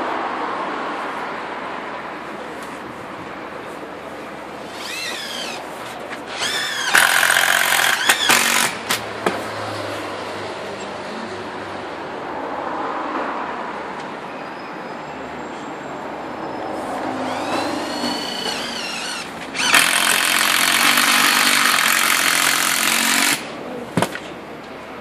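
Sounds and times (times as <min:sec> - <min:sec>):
cordless drill drilling into wall: 0:04.6 - 0:05.6, 0:06.3 - 0:09.0, 0:17.2 - 0:23.5.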